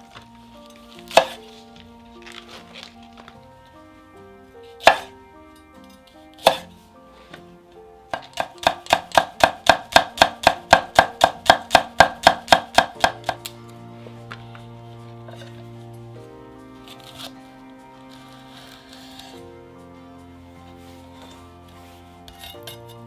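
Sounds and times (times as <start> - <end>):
knife chopping on cutting board: 1.1 - 1.4, 4.8 - 5.1, 6.4 - 6.7, 8.2 - 13.4.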